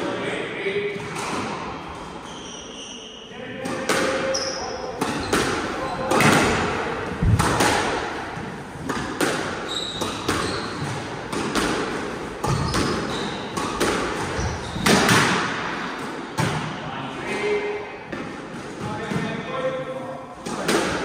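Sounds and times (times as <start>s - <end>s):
racket hitting squash ball: 0.9s - 1.8s, 3.6s - 16.8s, 20.4s - 21.0s
ball striking court walls: 5.0s - 15.7s
shoes squeaking: 9.5s - 11.4s, 12.4s - 15.1s.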